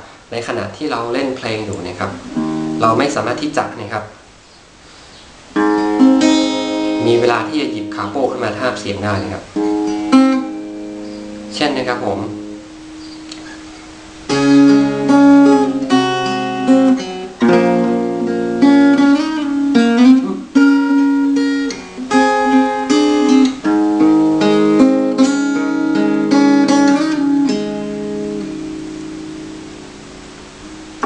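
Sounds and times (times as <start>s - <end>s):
acoustic guitar fingerpicking: 1.7s - 3.5s, 5.5s - 31.0s.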